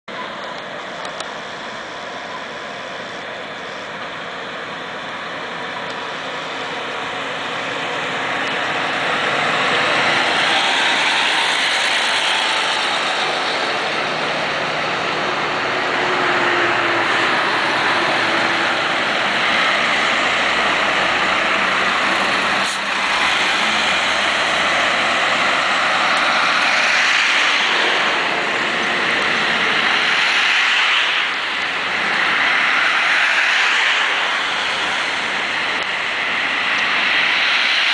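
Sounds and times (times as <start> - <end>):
road traffic noise: 0.0 - 37.9
bus diesel engine passing: 0.1 - 37.9.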